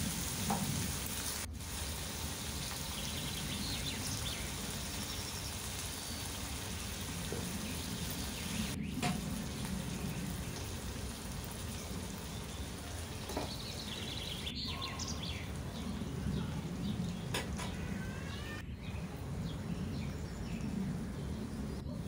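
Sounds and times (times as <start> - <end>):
oil sizzling in a pan: 0.0 - 15.6
bird chirps: 13.3 - 16.5.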